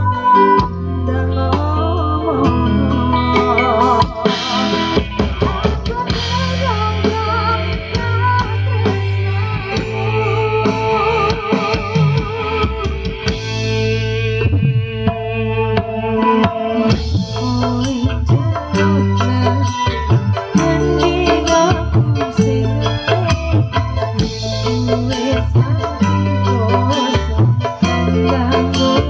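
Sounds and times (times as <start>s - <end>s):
woman singing: 0.0s - 13.0s, 16.8s - 29.0s
drumming: 3.4s - 29.0s
gamelan music: 13.3s - 29.0s.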